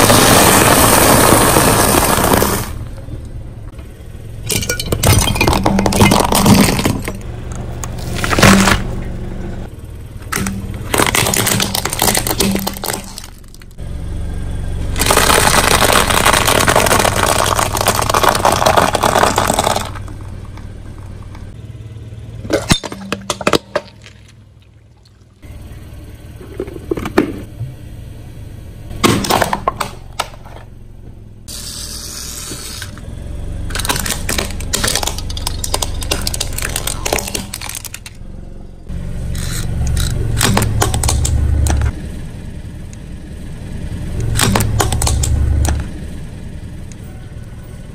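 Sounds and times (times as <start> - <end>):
plastic toys crushed by tyre: 0.0 - 2.9, 4.4 - 9.0, 10.3 - 13.8, 15.0 - 21.6, 22.4 - 24.4, 29.0 - 30.7, 33.6 - 38.2, 39.3 - 41.9, 44.2 - 45.9
car rumbling: 0.0 - 47.9.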